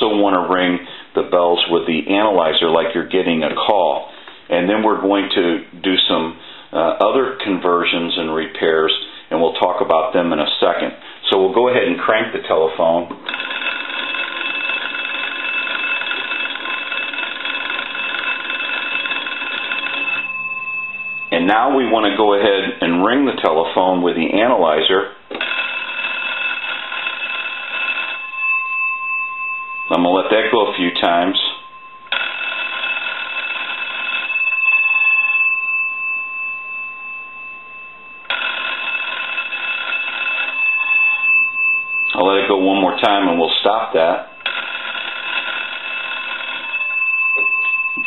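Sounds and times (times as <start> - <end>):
telephone bells ringing rapidly: 13.2 - 48.0.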